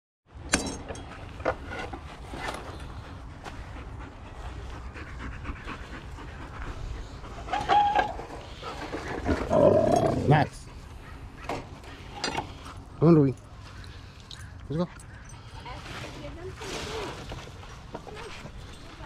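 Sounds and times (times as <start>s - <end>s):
dog panting: 2.9s - 13.0s.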